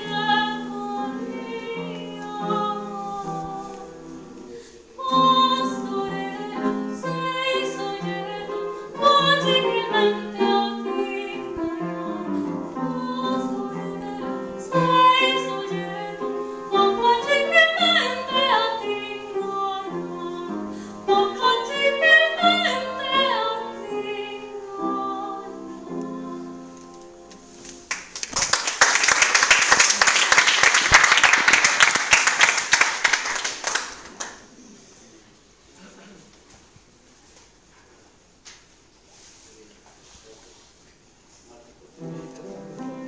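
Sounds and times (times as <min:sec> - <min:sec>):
woman singing operatically: 0:00.0 - 0:04.0, 0:05.0 - 0:26.8
piano accompaniment: 0:00.0 - 0:28.1, 0:41.8 - 0:43.0
audience applause: 0:27.9 - 0:34.4.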